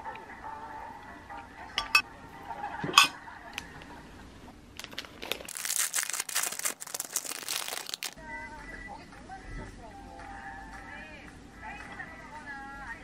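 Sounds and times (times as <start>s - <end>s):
metal spoon clinking ceramic bowl: 1.8s - 2.0s
plastic bag crinkling: 4.8s - 8.2s.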